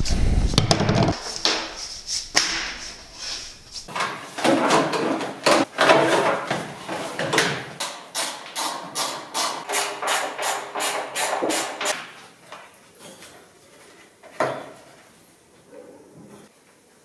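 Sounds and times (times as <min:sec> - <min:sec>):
low rumble: 0:00.0 - 0:01.2
tools knocking and rattling: 0:03.9 - 0:12.2.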